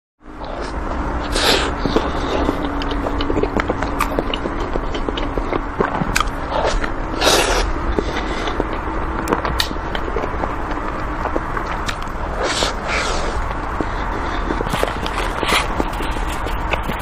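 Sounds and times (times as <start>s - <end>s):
biting and chewing cake: 0.3s - 17.0s
wet mouth clicks and smacks: 1.8s - 7.0s.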